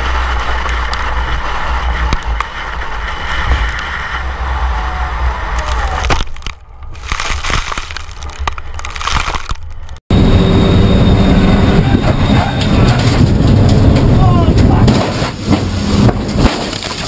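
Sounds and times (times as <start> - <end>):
race car engine rumble: 0.0 - 7.0, 9.8 - 17.0
cars colliding: 12.0 - 17.0.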